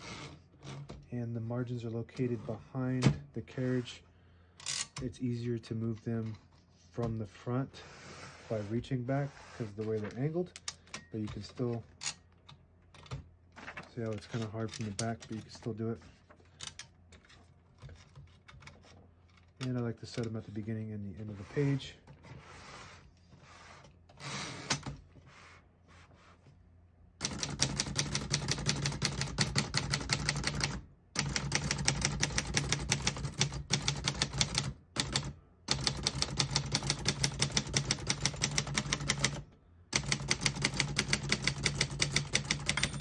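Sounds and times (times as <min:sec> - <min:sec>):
typewriter typing: 0:27.2 - 0:43.0.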